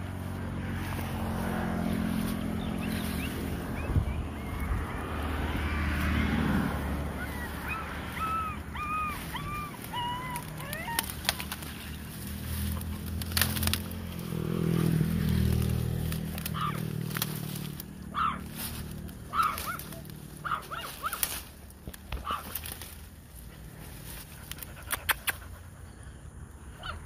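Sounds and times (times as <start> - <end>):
puppies whining cries: 7.0 - 11.9, 18.1 - 18.5, 19.3 - 21.3.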